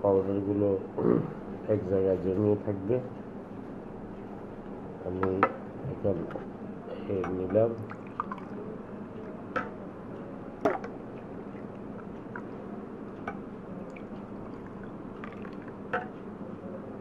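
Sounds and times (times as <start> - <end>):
liquid pouring between cups: 7.1 - 9.4, 10.6 - 16.1.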